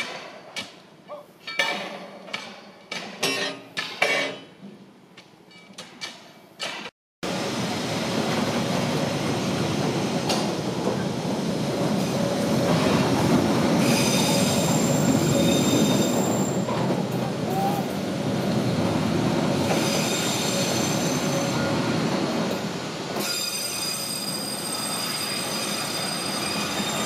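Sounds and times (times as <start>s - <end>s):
train wheels rumbling on track: 7.2s - 27.0s
high-pitched wheel squeal: 13.8s - 16.6s.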